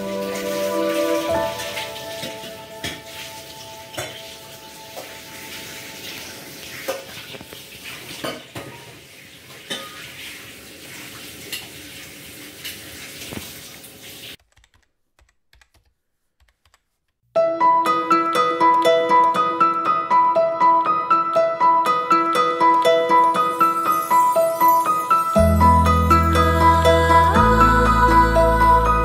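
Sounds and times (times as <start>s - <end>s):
plucked-string melody: 0.0s - 5.3s, 17.4s - 29.0s.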